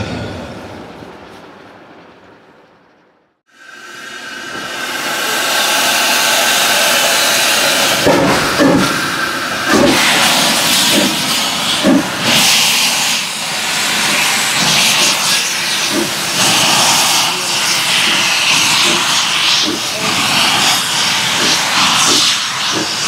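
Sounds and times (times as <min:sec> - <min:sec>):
steam locomotive exhaust chuffs: 0:00.0 - 0:23.0
steam hissing from locomotive: 0:03.5 - 0:23.0.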